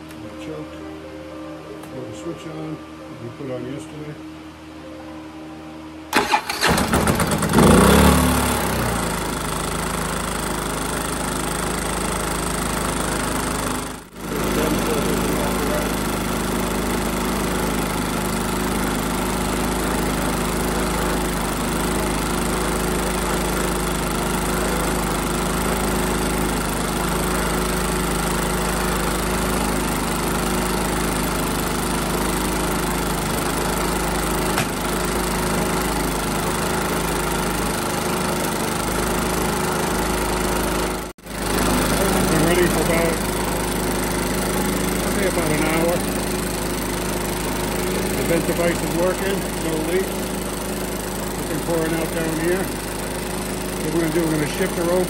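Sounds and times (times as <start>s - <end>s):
generator engine running: 5.3s - 55.0s.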